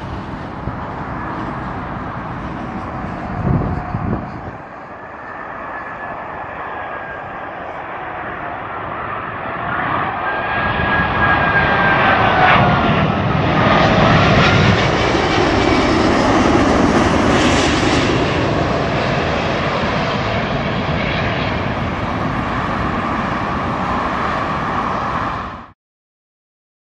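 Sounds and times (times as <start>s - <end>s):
jet engines passing overhead: 0.0s - 25.8s
whine gliding down in pitch: 1.0s - 18.4s.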